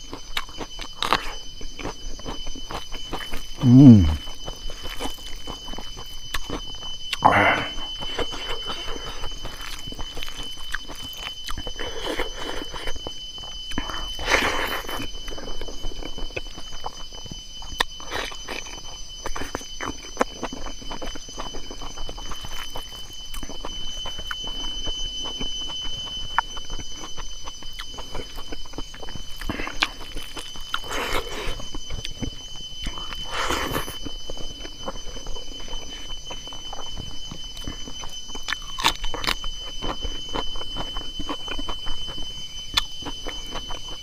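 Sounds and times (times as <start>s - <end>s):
crisp chewing: 0.0s - 44.0s
high-pitched whine: 0.0s - 44.0s.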